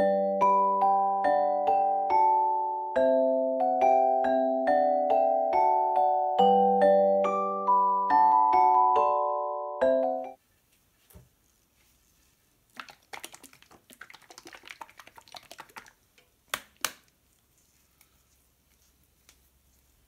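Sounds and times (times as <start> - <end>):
plastic bottle shaking rattle: 12.7 - 16.2.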